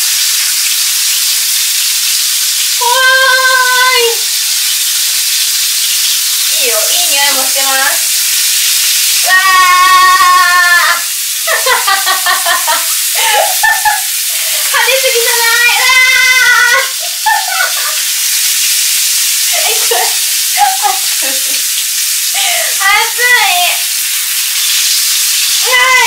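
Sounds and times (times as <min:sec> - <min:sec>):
chicken sizzling in hot oil: 0:00.0 - 0:26.0
woman's voice: 0:02.8 - 0:04.3, 0:06.5 - 0:08.1, 0:09.2 - 0:11.8, 0:14.6 - 0:16.9, 0:19.5 - 0:21.4, 0:22.4 - 0:23.8, 0:25.6 - 0:26.0.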